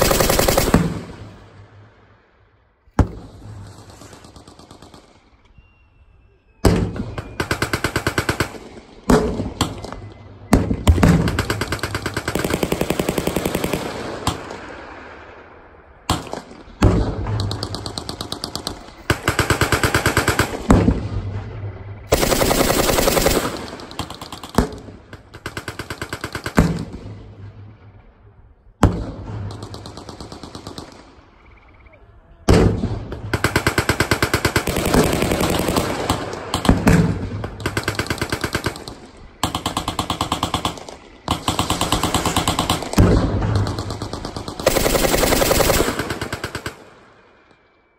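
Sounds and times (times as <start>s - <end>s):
machine gun bursts: 0.0s - 0.9s, 22.1s - 24.6s, 43.6s - 46.8s
rolling echo of gunfire: 0.0s - 5.4s, 6.6s - 31.4s, 32.4s - 47.6s.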